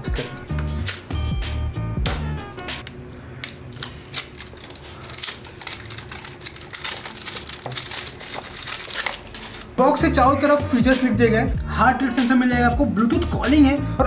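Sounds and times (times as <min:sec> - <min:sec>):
plastic shrink-wrap crackling: 0:03.7 - 0:09.8.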